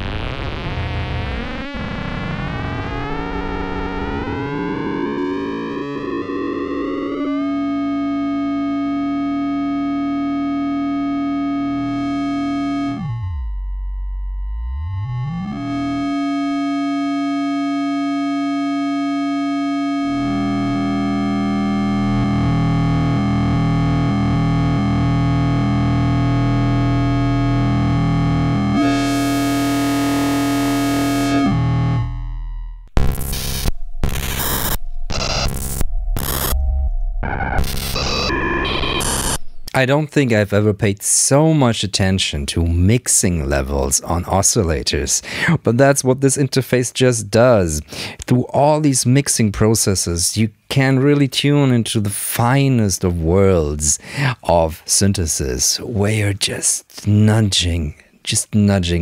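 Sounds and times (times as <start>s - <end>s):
synthesizer oscillators droning: 0.3s - 39.8s
low wobbling synth tone: 2.4s - 39.8s.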